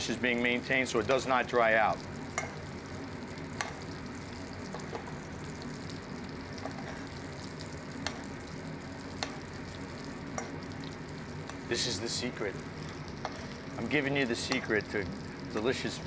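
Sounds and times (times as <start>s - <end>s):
butter sizzling in a pan: 0.1s - 16.0s
metal spoon clicking on pan: 2.4s - 2.6s.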